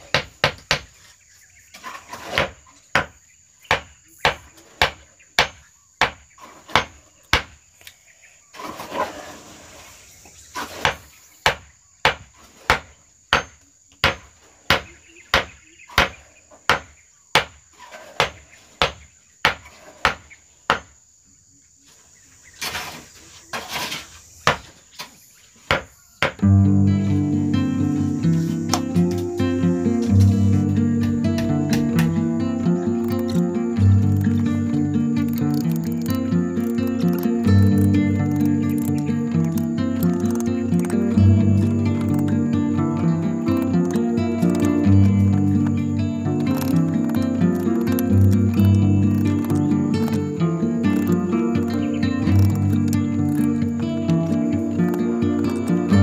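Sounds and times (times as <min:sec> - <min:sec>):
hammer striking nails into wood: 0:00.0 - 0:00.9, 0:02.2 - 0:07.6, 0:10.7 - 0:17.6, 0:18.2 - 0:20.9, 0:25.7 - 0:26.4, 0:33.0 - 0:42.6, 0:43.4 - 0:53.6
high insect drone: 0:00.0 - 0:56.0.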